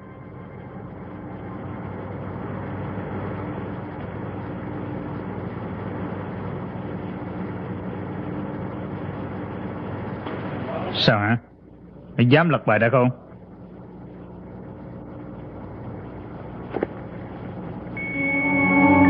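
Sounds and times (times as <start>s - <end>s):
faint low held tone: 18.0s - 19.0s.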